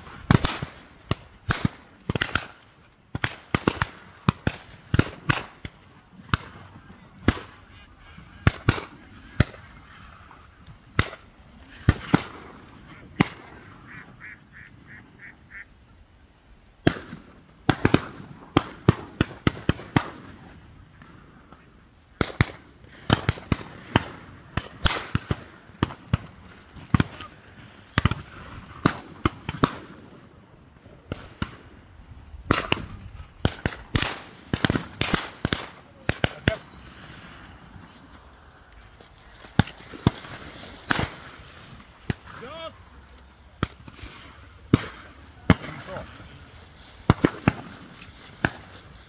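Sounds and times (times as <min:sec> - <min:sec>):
shotguns firing: 0:00.1 - 0:07.6, 0:11.0 - 0:13.9, 0:22.2 - 0:30.1, 0:32.5 - 0:37.2, 0:39.4 - 0:42.4, 0:47.0 - 0:48.8
ducks calling: 0:06.8 - 0:16.0.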